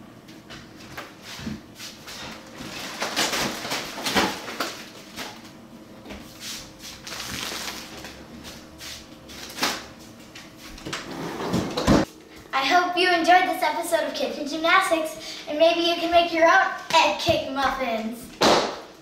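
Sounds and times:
plastic bags rustling: 2.1s - 5.4s, 6.9s - 8.5s.

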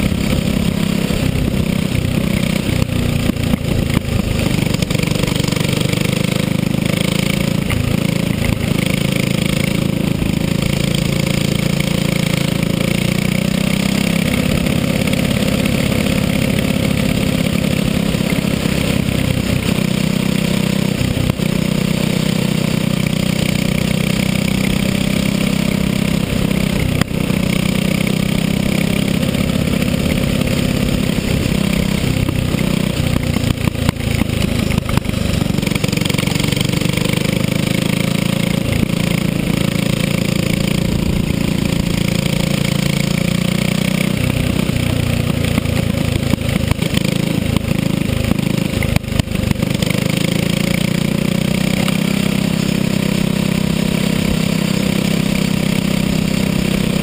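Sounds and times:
kart engine running: 0.0s - 57.0s.

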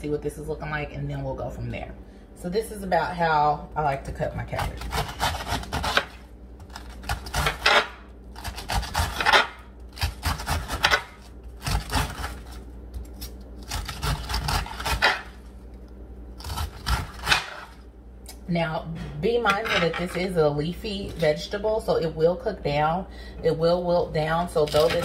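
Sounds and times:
knife slicing cabbage: 4.5s - 15.5s, 16.4s - 17.8s.

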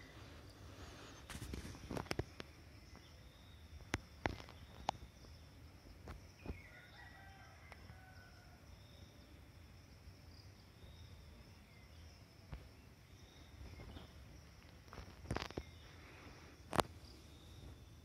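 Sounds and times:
insects droning: 0.0s - 18.0s
rooster crowing: 6.6s - 8.7s.

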